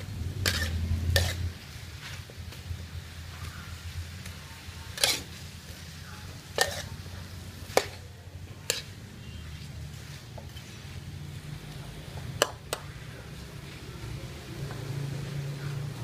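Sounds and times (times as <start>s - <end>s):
metal spatula scraping a wok: 0.0s - 2.3s, 4.2s - 11.4s.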